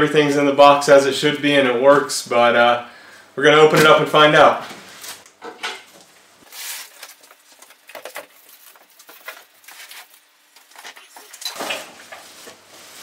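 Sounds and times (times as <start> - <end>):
cardboard rustling and scraping: 6.4 - 13.0.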